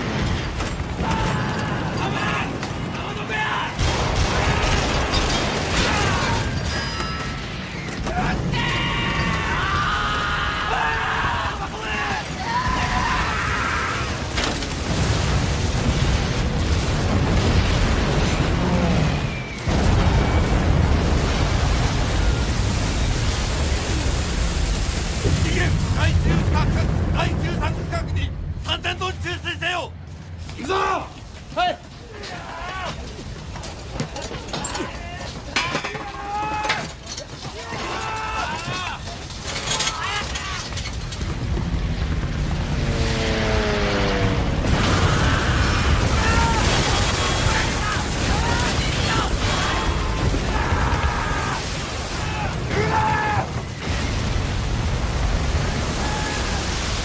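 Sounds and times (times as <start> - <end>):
rumble of explosions: 0.0 - 57.0
heavy low rumble: 40.8 - 46.6.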